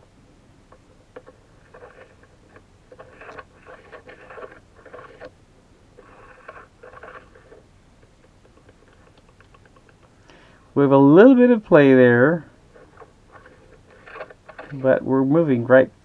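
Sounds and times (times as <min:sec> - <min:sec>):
metal slide scraping: 0:01.2 - 0:05.3, 0:06.0 - 0:07.6, 0:12.7 - 0:15.0.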